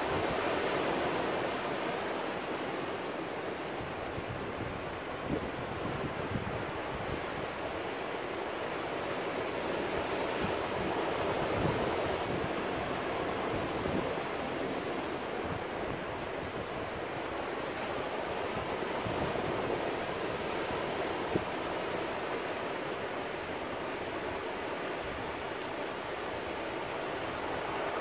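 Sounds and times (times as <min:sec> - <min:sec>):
sea surf washing over rocks: 0:00.0 - 0:24.1.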